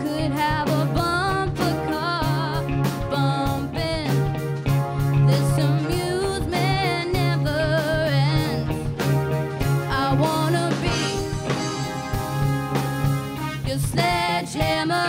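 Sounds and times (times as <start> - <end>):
woman singing with vibrato: 0.0 - 4.3, 5.3 - 8.8, 9.9 - 11.3, 13.6 - 15.0
live band music: 0.0 - 15.0
drum hits: 10.8 - 14.3.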